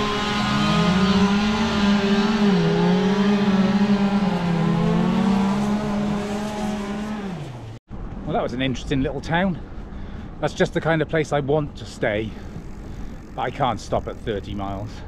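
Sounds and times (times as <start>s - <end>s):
chainsaw cutting wood: 0.0s - 7.5s.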